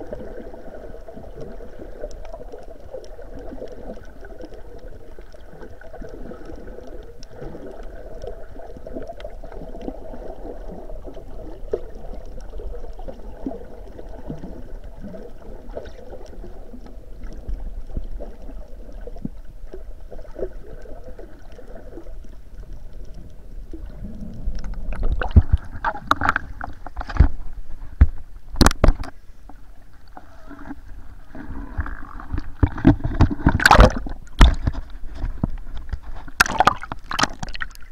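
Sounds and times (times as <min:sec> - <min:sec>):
water sloshing: 0:00.0 - 0:37.9.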